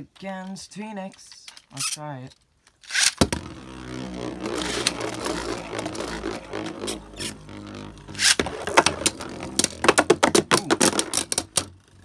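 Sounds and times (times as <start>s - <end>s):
spinning top whirring: 2.9s - 10.2s.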